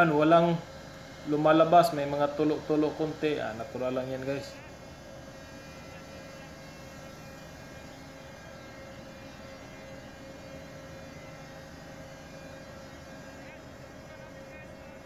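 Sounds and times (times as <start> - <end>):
machinery hum: 0.0 - 15.0.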